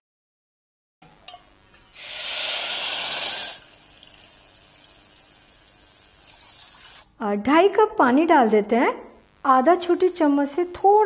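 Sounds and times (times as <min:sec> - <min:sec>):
water hissing in hot pot: 0:01.8 - 0:07.2
faint water trickle: 0:03.6 - 0:07.1.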